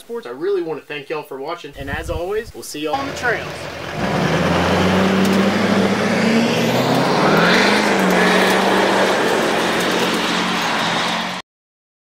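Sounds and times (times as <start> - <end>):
truck engine accelerating: 3.0 - 11.4
tyres throwing gravel: 3.8 - 11.4.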